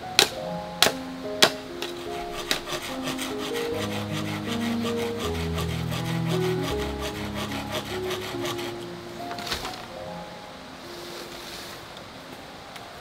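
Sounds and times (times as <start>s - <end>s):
background music with held notes: 0.0s - 12.0s
saw cutting bamboo: 0.2s - 8.8s.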